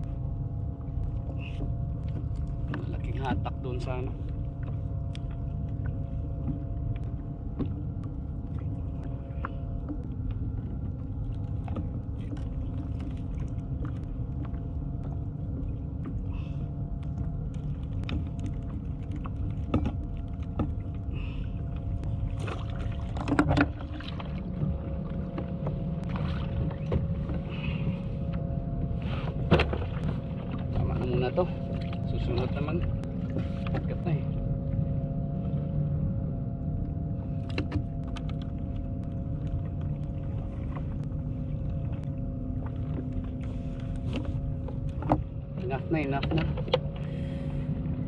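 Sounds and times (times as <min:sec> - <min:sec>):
faint steady hum: 0:00.0 - 0:48.0
wind and water rumble: 0:00.0 - 0:48.0
clicks and knocks of fishing gear: 0:17.0 - 0:21.1, 0:21.8 - 0:27.6, 0:29.2 - 0:31.1, 0:37.4 - 0:41.2, 0:41.8 - 0:45.3, 0:46.2 - 0:47.2.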